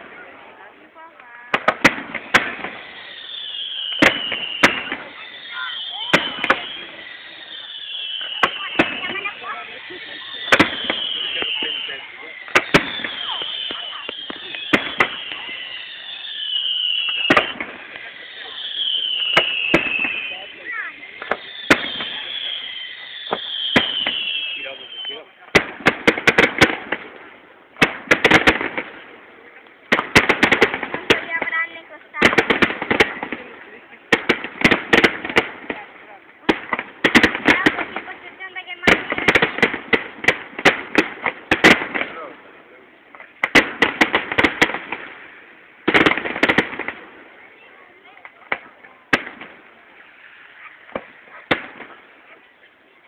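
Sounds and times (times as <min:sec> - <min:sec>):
fireworks bursting with sharp bangs: 0:00.0 - 0:53.0
high falling firework whistle: 0:01.9 - 0:25.4.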